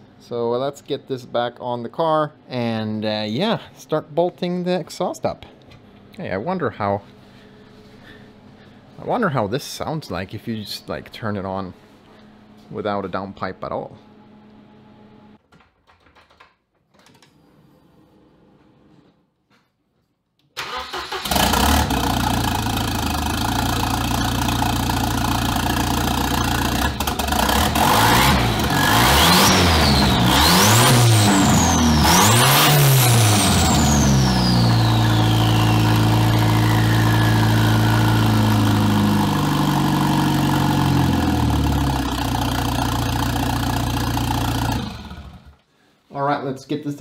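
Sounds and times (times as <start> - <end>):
car engine idling and revving: 21.2 - 45.5
turbo whistle: 34.0 - 37.6.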